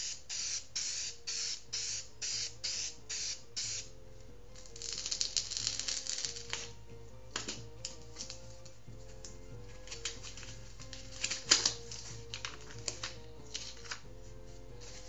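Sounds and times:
aerosol can hissing: 0.0 - 3.9
soft background music: 0.0 - 15.0.

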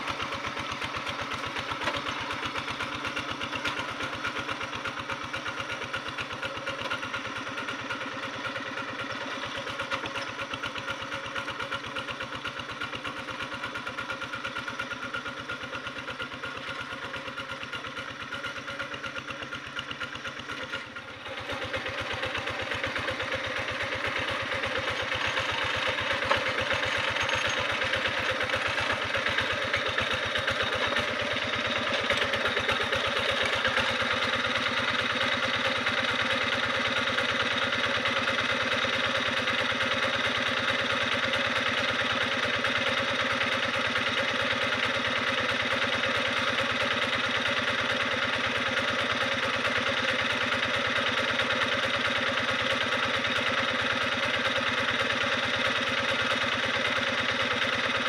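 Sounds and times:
diesel engine chugging: 0.0 - 58.0.

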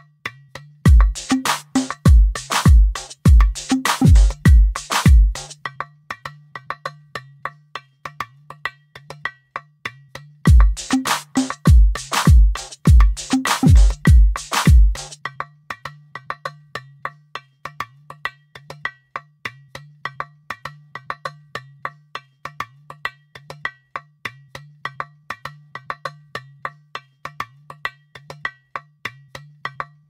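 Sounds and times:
electronic beat music: 0.9 - 5.6, 10.5 - 15.2.

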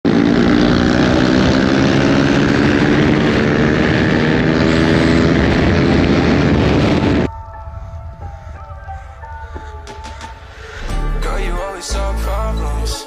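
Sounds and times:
motorcycle engine running hard: 0.0 - 7.3.

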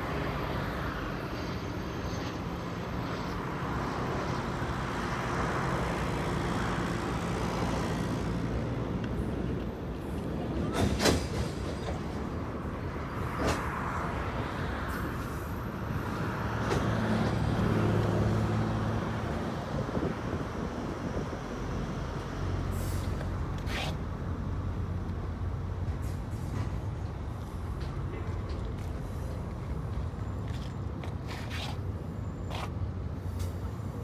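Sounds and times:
train wheels rumbling on rail: 7.2 - 18.2, 24.8 - 31.8.

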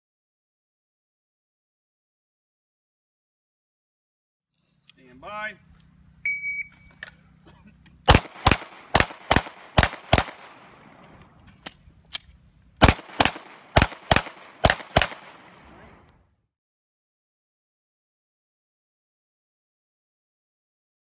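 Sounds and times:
shot timer beep: 6.2 - 6.9
pistol shots: 8.1 - 11.8, 12.8 - 15.8.

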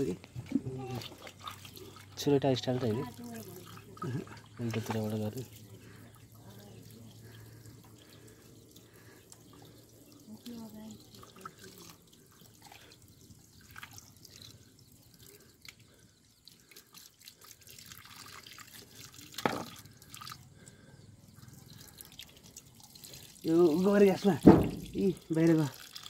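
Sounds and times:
hands rinsing chicken: 0.0 - 26.0
water dripping: 0.0 - 26.0
tap water splashing on stone: 19.3 - 19.9, 24.2 - 25.7.

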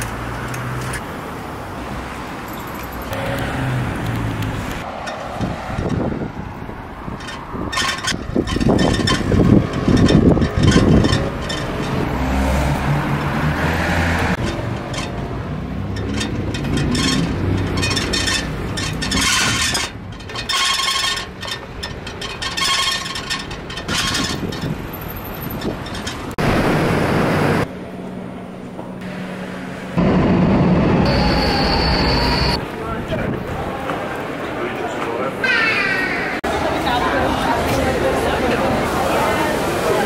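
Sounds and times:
city traffic: 0.0 - 40.0
metro train whine: 3.1 - 4.4, 30.0 - 32.6
wire basket rattling: 15.8 - 26.4.

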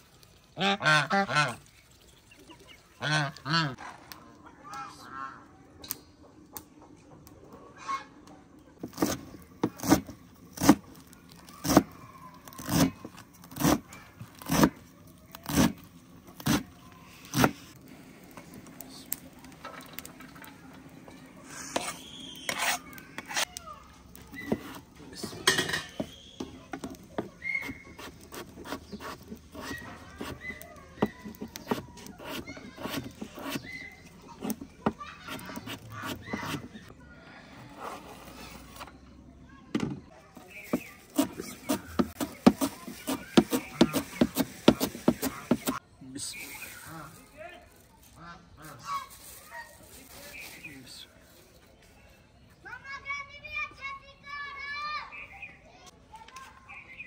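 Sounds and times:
utensils clattering and scraping: 19.4 - 23.5, 24.2 - 36.9.

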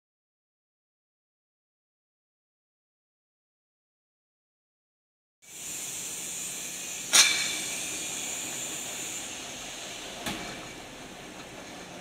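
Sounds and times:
rinse jets hissing: 5.5 - 11.4
machine clanks: 7.1 - 7.9, 10.2 - 12.0.

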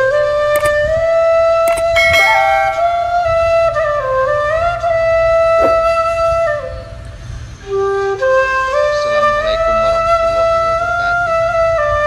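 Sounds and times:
melody of long held notes: 1.8 - 3.9.

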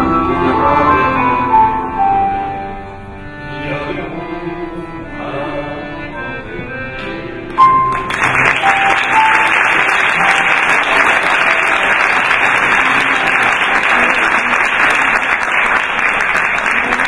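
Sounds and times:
accordion and piano piece: 0.0 - 17.0
audience applauding: 7.7 - 17.0.

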